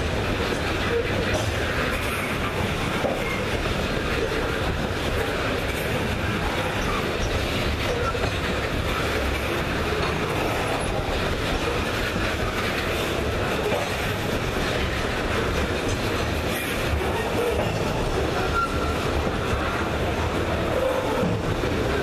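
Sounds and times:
train cars rolling past: 0.0s - 22.0s.

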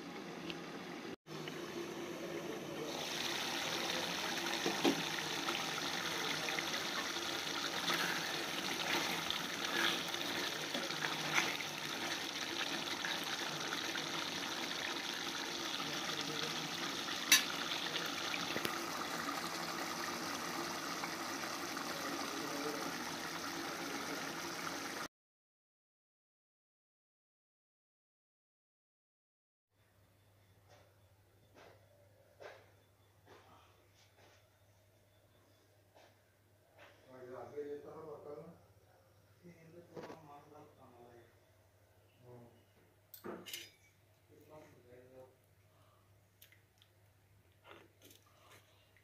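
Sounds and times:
curry bubbling in a pot: 2.9s - 25.1s.

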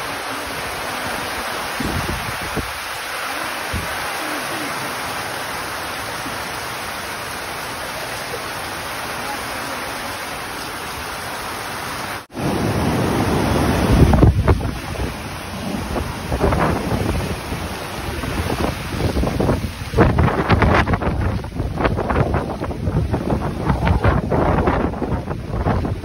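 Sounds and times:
wind rumbling on microphone: 0.0s - 4.2s, 12.3s - 26.0s
rain and wind hiss: 0.0s - 26.0s
surf breaking on a beach: 0.0s - 26.0s.

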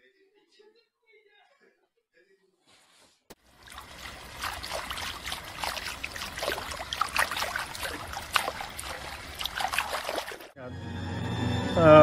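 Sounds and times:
water splashing from kicking legs: 3.4s - 10.6s.

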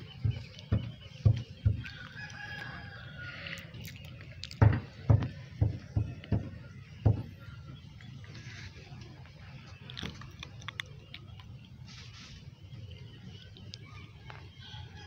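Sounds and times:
rooster crowing: 1.8s - 3.7s.

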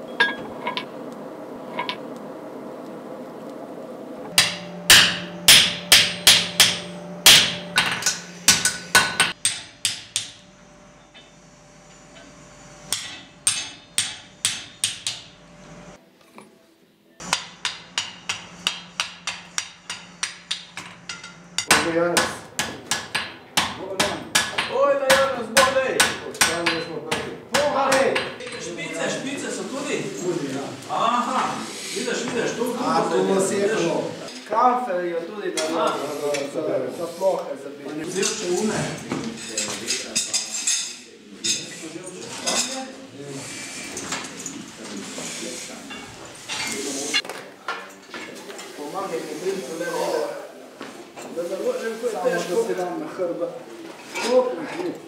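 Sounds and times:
hammer striking iron on anvil: 0.1s - 0.9s, 1.7s - 2.0s, 4.3s - 10.4s, 12.9s - 15.4s, 17.2s - 28.6s.

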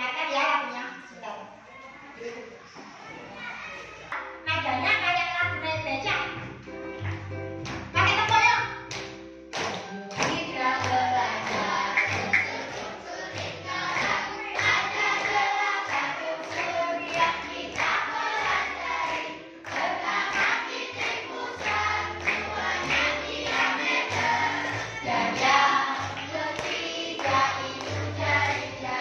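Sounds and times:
children clapping in time: 7.0s - 29.0s
children singing in chorus: 10.3s - 29.0s.

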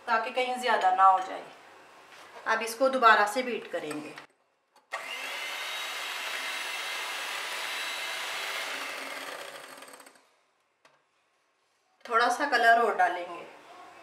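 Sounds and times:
electric hand mixer whirring: 4.9s - 10.2s.

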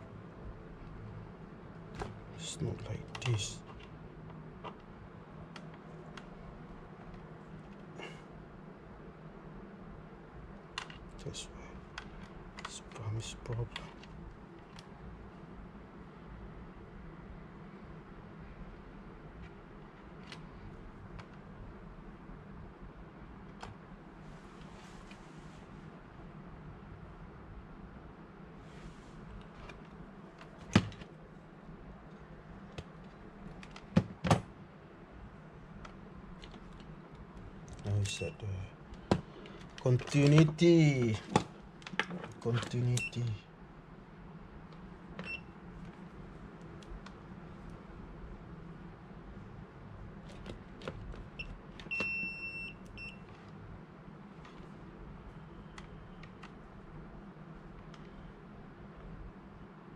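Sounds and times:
multimeter beeps: 43.0s - 43.4s, 45.2s - 45.6s, 51.4s - 53.3s.

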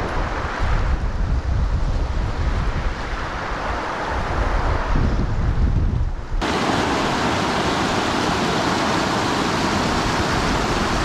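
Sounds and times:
wind buffeting microphone: 0.0s - 11.0s
river rushing over rocks: 6.4s - 11.0s.

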